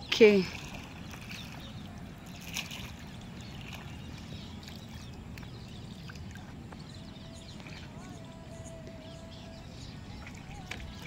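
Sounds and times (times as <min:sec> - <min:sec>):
faint water sounds: 0:00.0 - 0:11.0.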